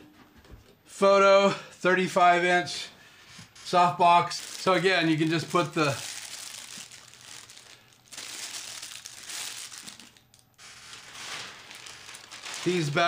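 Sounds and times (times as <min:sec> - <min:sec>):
plastic bag crinkling: 0:03.7 - 0:13.0.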